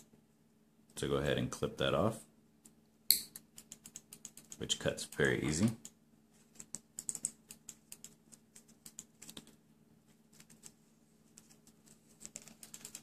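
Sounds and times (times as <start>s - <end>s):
faint steady hum: 0.0s - 13.0s
thin wire ticking and clicking: 6.6s - 9.6s.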